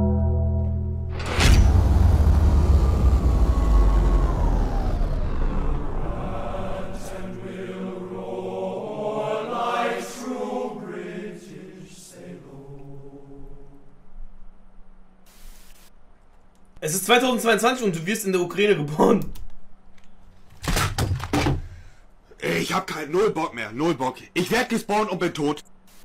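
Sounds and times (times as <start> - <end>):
bass-heavy music: 0.0 - 6.7.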